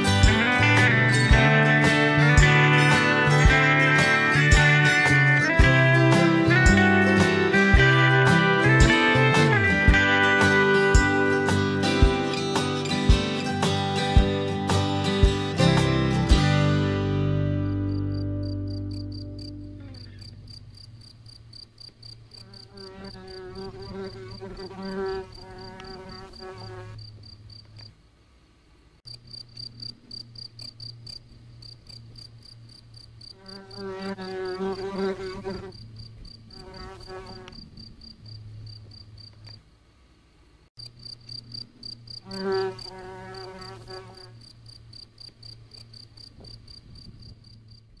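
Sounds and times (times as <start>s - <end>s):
cricket chirping: 17.7s - 28.0s, 29.1s - 39.8s, 40.8s - 48.0s.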